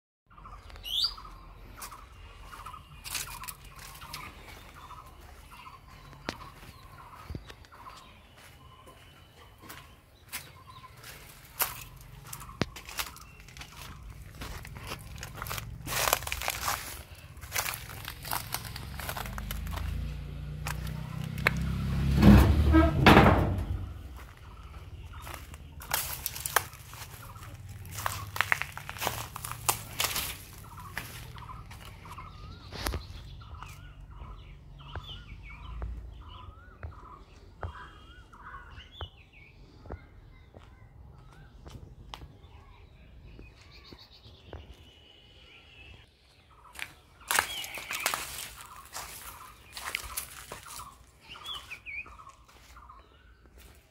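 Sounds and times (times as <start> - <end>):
birds calling: 0.3 - 53.9
footsteps on dry straw: 1.7 - 22.1, 23.4 - 34.4, 46.7 - 53.9
sharp knocks: 22.1 - 24.0.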